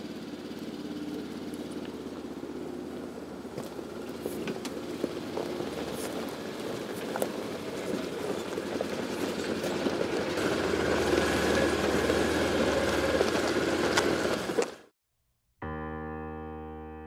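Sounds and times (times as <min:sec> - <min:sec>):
utility vehicle engine humming: 0:00.0 - 0:14.9.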